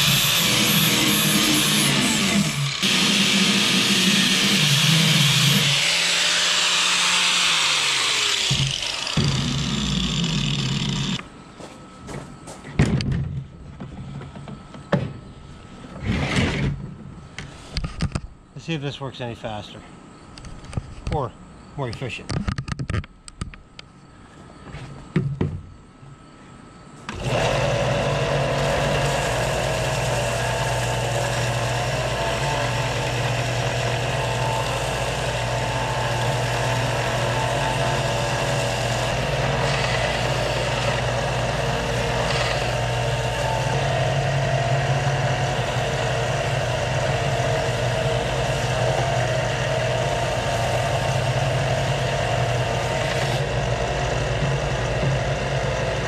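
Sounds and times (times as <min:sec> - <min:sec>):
wood grinding on sanding belt: 0:00.0 - 0:11.2, 0:27.1 - 0:56.0
belt sander humming: 0:00.0 - 0:12.6, 0:27.1 - 0:56.0.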